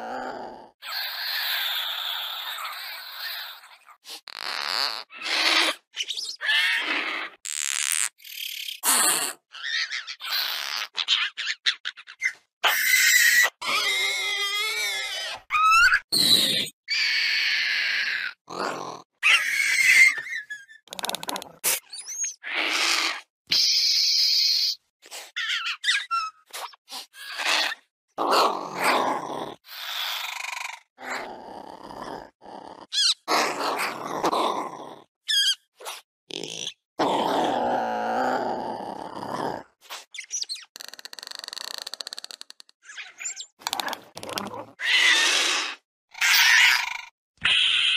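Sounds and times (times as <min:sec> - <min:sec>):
high squeaky chirp: 0:42.8 - 0:43.6.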